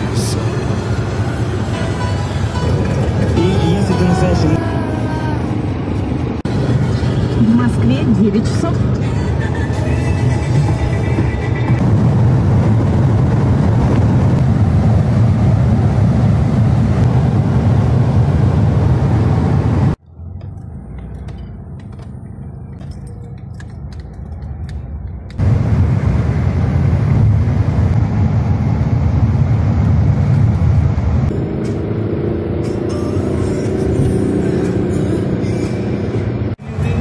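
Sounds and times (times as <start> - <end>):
car engine and road noise drone: 0.0 - 37.0.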